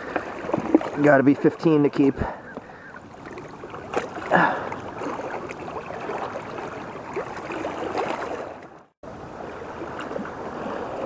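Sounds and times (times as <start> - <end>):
water flowing against rocks: 0.0 - 9.0
fish splashing into water: 3.1 - 8.6.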